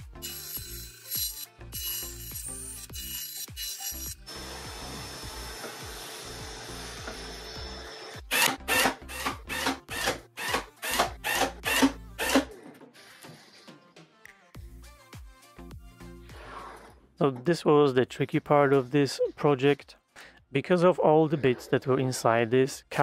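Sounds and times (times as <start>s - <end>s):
bandsaw cutting plywood: 0.0s - 12.5s.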